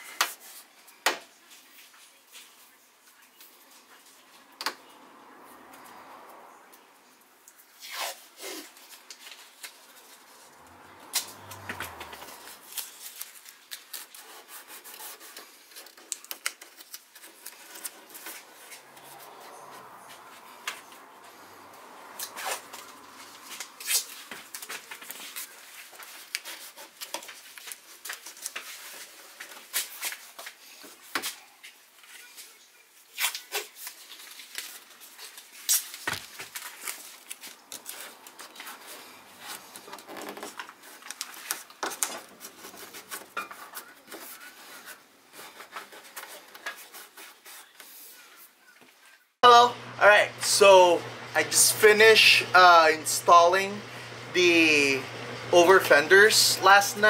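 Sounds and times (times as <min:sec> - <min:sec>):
handling rustle: 0:33.3 - 0:49.2.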